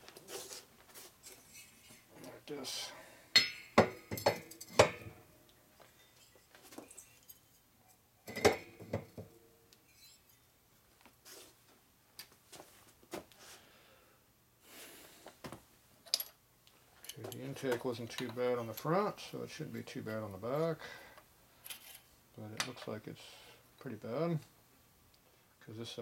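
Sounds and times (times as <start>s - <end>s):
metal engine parts clanking: 8.2s - 9.2s.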